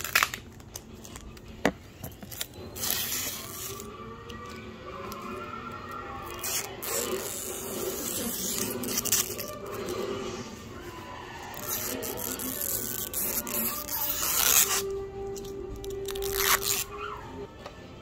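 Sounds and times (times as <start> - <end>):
plastic film peeling off: 0.0 - 1.5, 2.1 - 4.3, 11.5 - 17.1.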